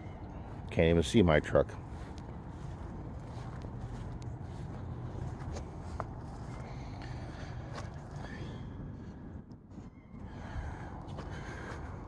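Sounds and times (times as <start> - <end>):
outdoor background noise: 0.0 - 12.0
footsteps on wet grass: 0.4 - 8.3.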